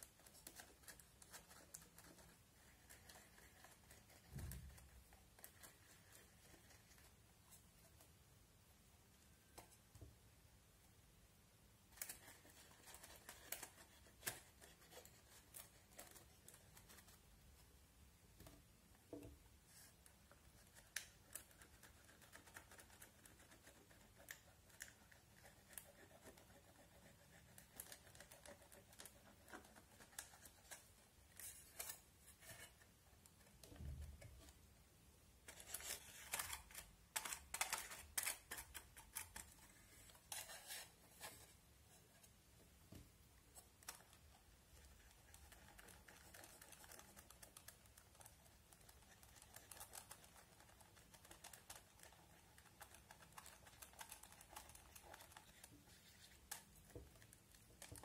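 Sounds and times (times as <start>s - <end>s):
plastic stick scraping and clicking: 35.5s - 41.3s.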